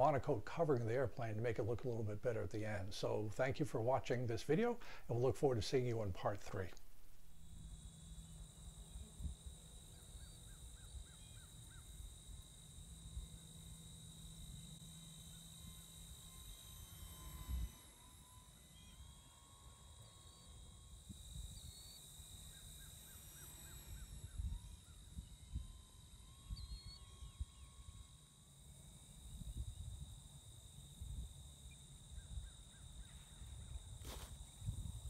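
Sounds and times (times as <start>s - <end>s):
high insect drone: 0.0s - 35.0s
wind rumble on microphone: 29.3s - 30.2s, 33.4s - 35.0s.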